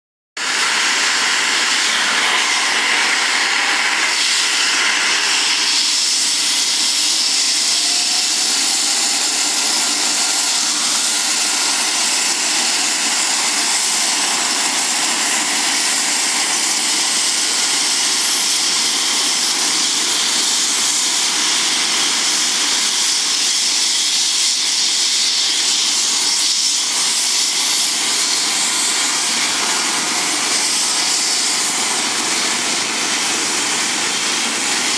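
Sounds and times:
helicopter turbine engines whining: 0.4s - 34.9s.

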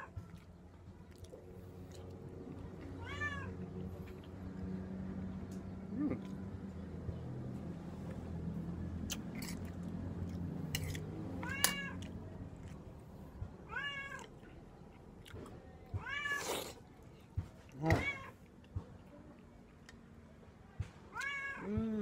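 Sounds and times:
cat meowing: 3.0s - 3.6s, 11.4s - 12.1s, 13.7s - 14.3s, 16.0s - 16.4s, 21.1s - 21.8s.

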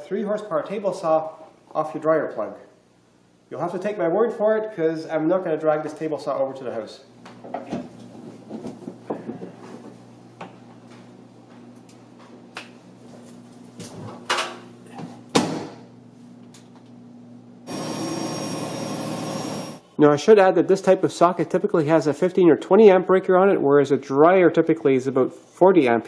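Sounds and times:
electronic buzzing beep: 17.7s - 19.8s.

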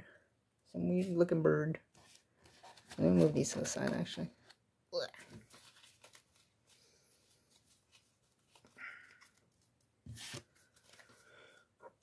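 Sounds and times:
trading cards and wrappers rustling: 2.0s - 4.3s, 5.2s - 12.0s.

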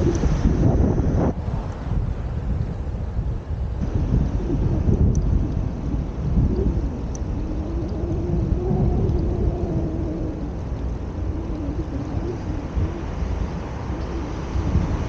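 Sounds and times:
wind-like roar: 0.0s - 15.0s.

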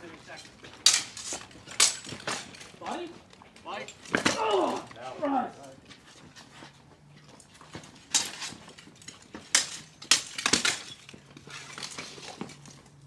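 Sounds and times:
swords clashing on armour: 0.3s - 5.4s, 7.7s - 12.6s.

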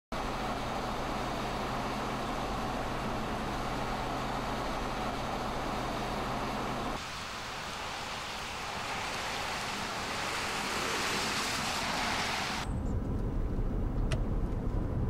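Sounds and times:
car engine hum: 0.1s - 15.0s.

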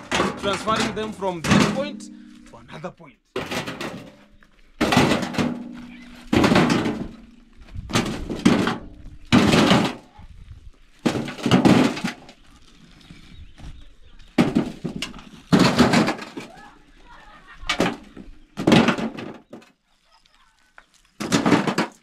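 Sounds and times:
stones clattering into metal wheelbarrow: 0.0s - 2.6s, 3.4s - 13.3s, 14.2s - 16.8s, 17.5s - 19.8s, 21.0s - 22.0s.

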